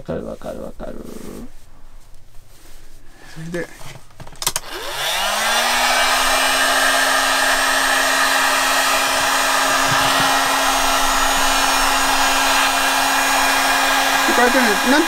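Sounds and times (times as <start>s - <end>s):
heat gun fan whine: 4.2s - 15.0s.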